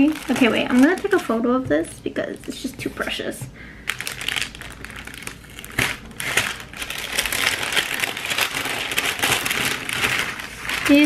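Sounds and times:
paper sleeve crinkling: 0.0s - 1.5s, 3.8s - 11.0s.

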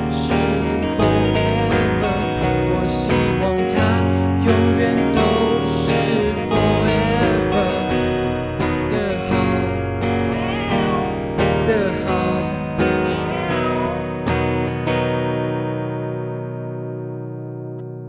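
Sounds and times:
band playing with strummed guitars: 0.0s - 18.0s.

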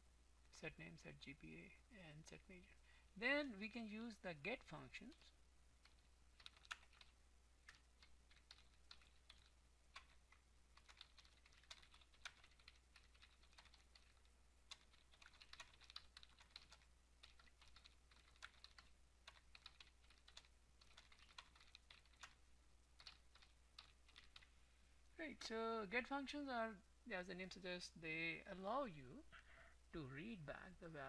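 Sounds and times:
computer keyboard typing: 5.8s - 22.4s, 23.0s - 24.5s.

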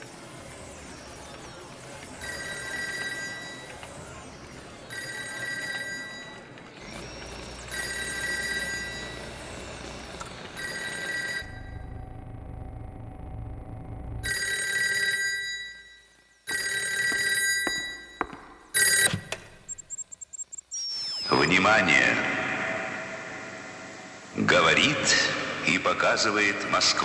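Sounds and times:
telephone bell ringing: 2.2s - 3.8s, 4.9s - 6.6s, 7.6s - 11.9s, 14.2s - 19.4s
low hum: 11.4s - 14.3s.

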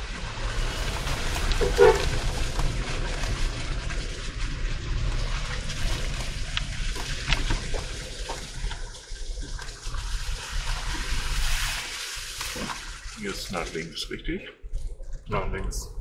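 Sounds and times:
low engine rumble: 0.0s - 11.0s
tyres splashing through mud: 0.0s - 13.9s
grit crackling: 0.1s - 14.0s.

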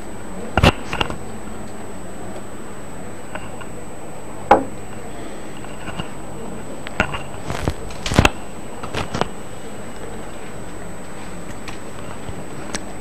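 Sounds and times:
faint high whine: 0.0s - 13.0s
clicks and knocks: 4.5s - 4.8s.

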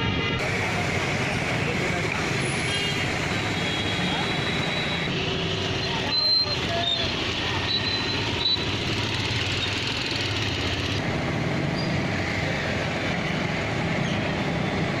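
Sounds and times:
vehicle engines running: 0.0s - 15.0s.

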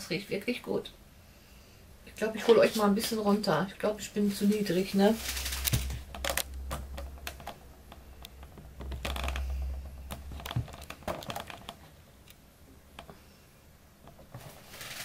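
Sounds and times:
camera handling rubbing rumble: 5.2s - 12.0s.

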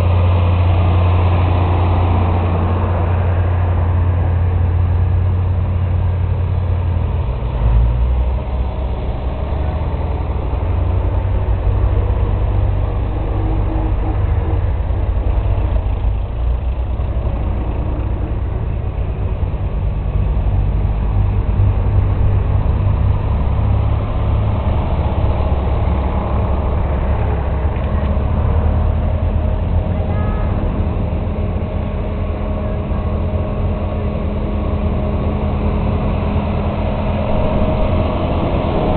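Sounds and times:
tractor engines droning: 0.0s - 38.9s.

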